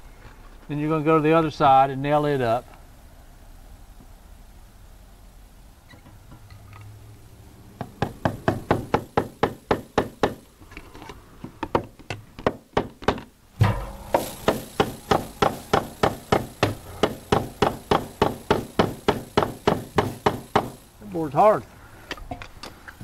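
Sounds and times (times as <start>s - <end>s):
hammer tapping nail: 7.8s - 10.4s, 11.6s - 13.3s, 14.1s - 20.8s.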